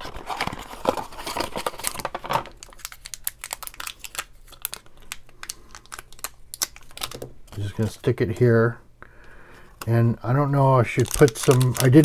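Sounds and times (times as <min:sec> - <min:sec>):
adhesive dot peeling crackles: 0:02.7 - 0:07.9, 0:10.9 - 0:12.0.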